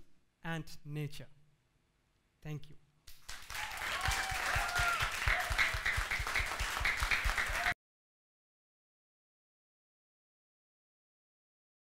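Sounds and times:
audience applauding: 3.2 - 7.8.

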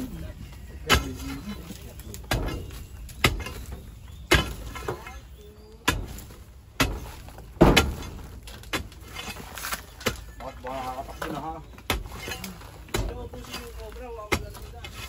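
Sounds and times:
loose soil crumbling: 0.0 - 15.0.

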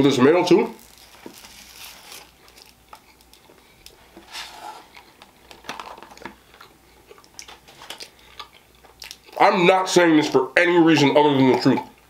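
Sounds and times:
foil rustle: 0.5 - 4.9
close chewing: 0.8 - 4.1, 6.1 - 9.4.

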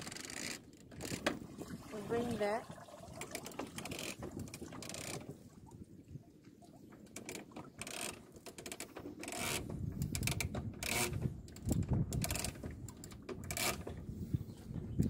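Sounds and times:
rigging clicks: 6.9 - 14.0
low wind rumble: 9.4 - 15.0.

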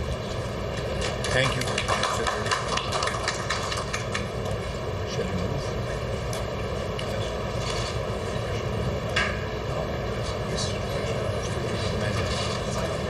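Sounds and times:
steady machine-like background noise: 0.0 - 13.0
applause: 1.0 - 4.4.

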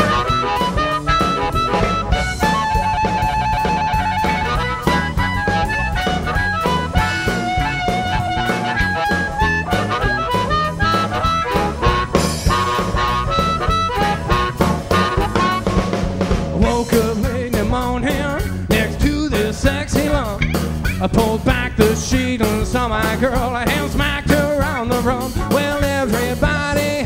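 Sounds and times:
harmonica solo: 0.0 - 19.2
drum kit beat: 0.0 - 27.0
electric bass: 0.0 - 27.0
electric guitar: 0.0 - 27.0.

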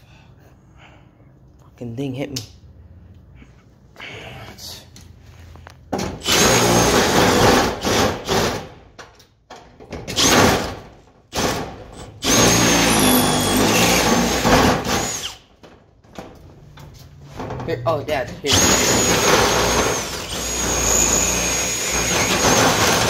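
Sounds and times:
cordless drill grinding metal: 6.2 - 8.5, 12.0 - 15.4, 18.5 - 23.0.

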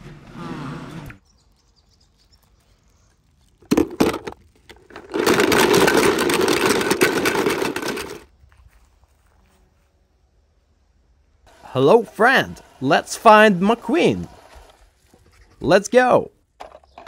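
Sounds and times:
toy cars rattling: 2.4 - 8.3, 16.6 - 17.0
toy cars knocking: 3.6 - 8.3, 16.6 - 17.0.

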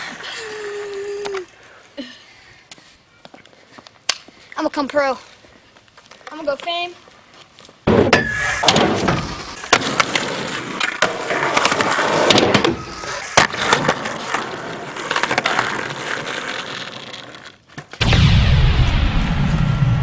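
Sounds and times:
skateboard wheels rolling on concrete: 0.0 - 18.0
skateboard clacking on ground: 9.6 - 18.0.

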